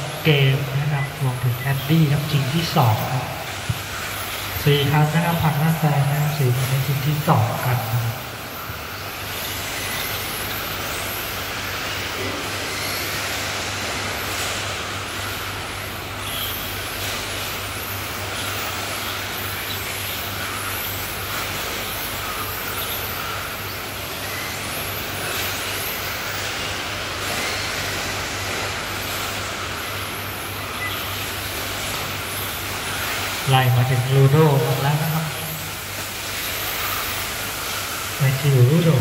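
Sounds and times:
steady low hum: 0.0s - 39.0s
rc car motors whining: 2.8s - 13.1s.

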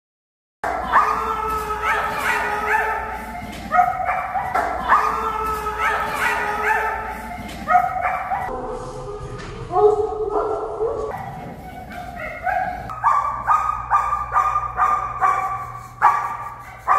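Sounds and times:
dog whining and yipping: 0.9s - 8.5s, 10.9s - 16.9s.

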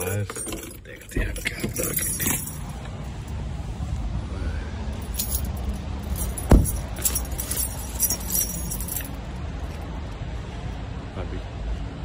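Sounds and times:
keys jingling: 0.0s - 2.9s, 5.0s - 9.8s
steady low rumble: 0.9s - 12.0s
car door shutting: 6.4s - 7.1s.

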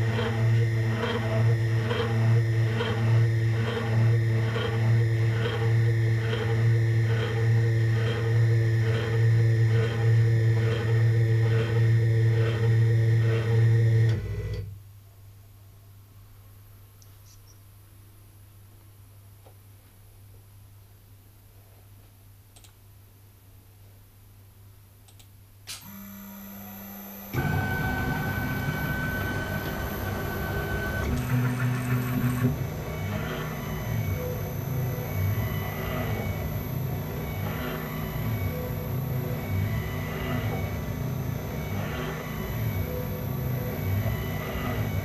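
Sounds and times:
milling machine humming: 0.0s - 14.3s, 25.9s - 45.0s
spindle motor whining: 25.8s - 45.0s.

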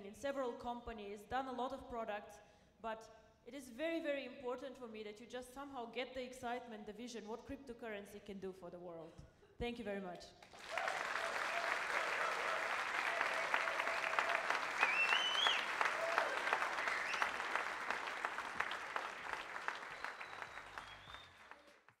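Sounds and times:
audience applauding and cheering: 10.5s - 22.0s.

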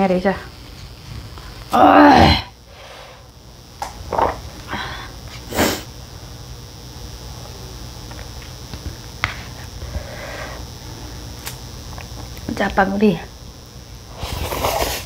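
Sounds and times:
person slurping noodles: 14.1s - 15.0s.

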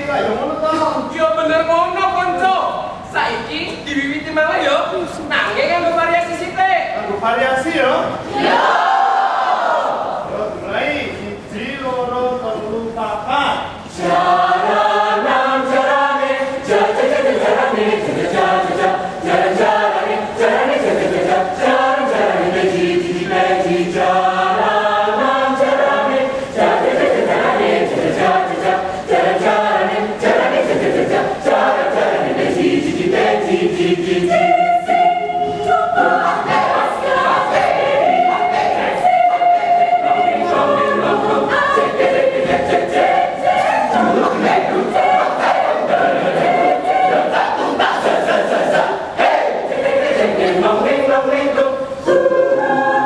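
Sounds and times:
choir singing a cappella: 8.2s - 10.3s, 13.8s - 53.0s.

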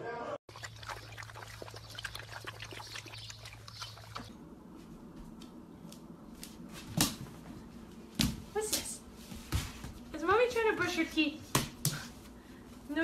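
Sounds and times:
small water splashes: 0.5s - 4.3s
puppies lapping water: 0.5s - 4.4s.

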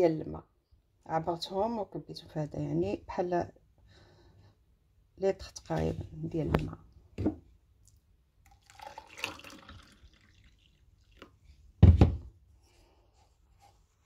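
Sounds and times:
water pouring into a glass: 8.4s - 11.4s
heavy knock on counter: 11.8s - 12.3s.

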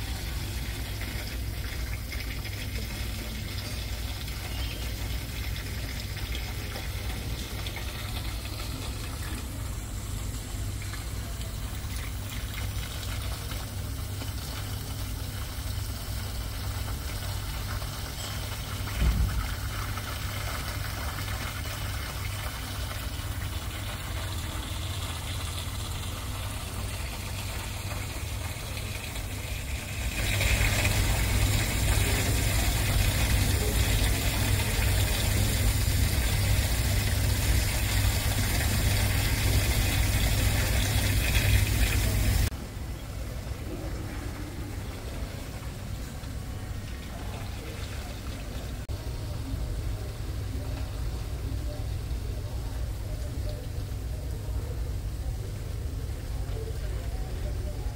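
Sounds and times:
indoor waterfall running: 0.0s - 57.9s
thump: 19.0s - 19.5s.

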